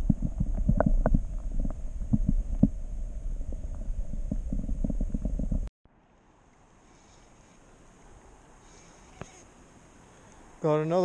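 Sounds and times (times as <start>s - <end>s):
dull underwater knocks and thumps: 0.0s - 5.7s
muffled underwater stream water: 0.0s - 5.7s.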